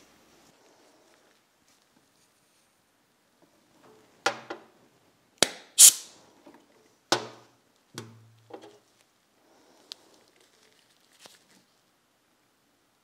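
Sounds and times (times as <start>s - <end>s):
metal knocks on steel workbench: 7.1s - 8.7s.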